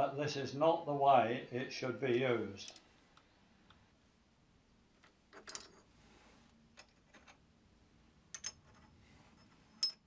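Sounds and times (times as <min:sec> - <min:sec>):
ringing metal clinks: 0:09.8 - 0:10.0.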